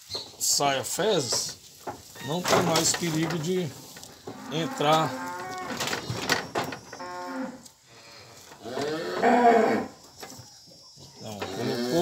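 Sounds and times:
cow mooing: 4.4 - 5.9, 7.0 - 7.7, 8.6 - 9.9, 11.5 - 12.0.

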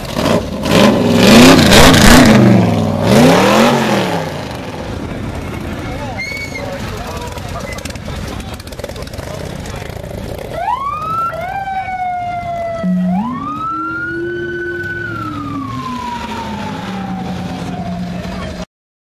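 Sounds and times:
police siren wailing: 10.5 - 18.6.

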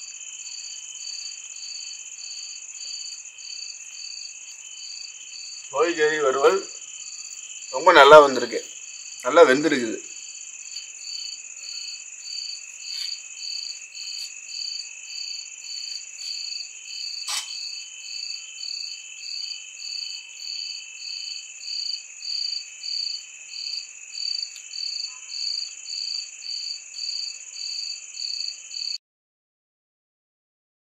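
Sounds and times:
crickets and insects shrilling: 0.0 - 28.9
pulsed insect chirp: 0.0 - 29.0
sharp click: 17.2 - 17.6.

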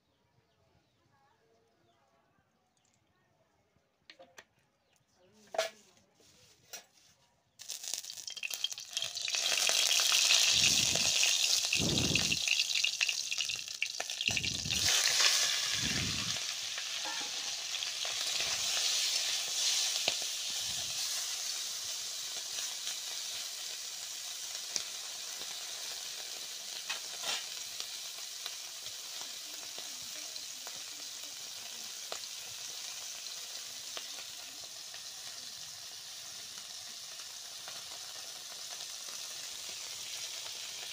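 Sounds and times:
fish sizzling in hot oil: 7.6 - 40.9
spatula stirring in pan: 14.2 - 23.1.

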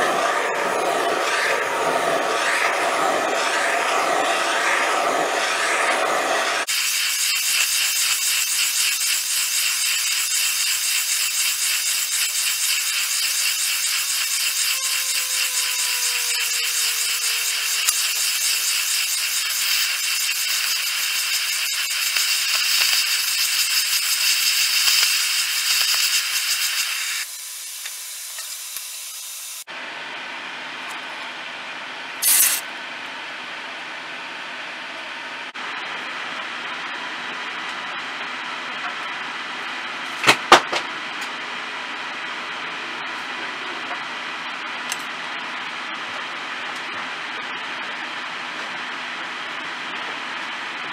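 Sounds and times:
torch flame hissing: 0.0 - 29.7, 32.2 - 32.6.

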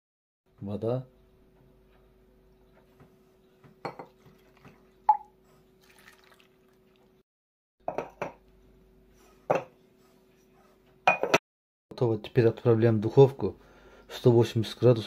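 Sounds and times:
water pouring into pots: 4.0 - 7.2
water plop: 4.1 - 7.1.

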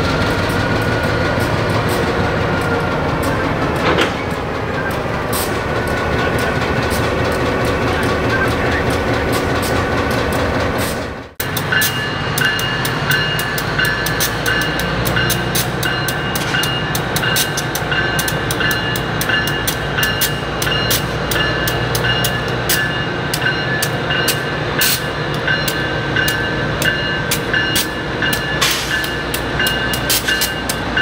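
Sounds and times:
clicking train wheels: 0.0 - 31.0
diesel locomotive rumbling: 0.0 - 31.0
locomotive bell ringing: 11.4 - 31.0.

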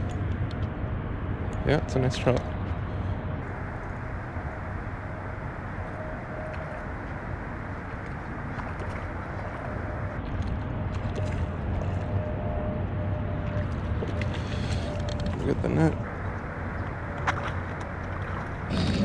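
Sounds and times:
low rushing noise: 0.0 - 10.9, 15.9 - 18.8.

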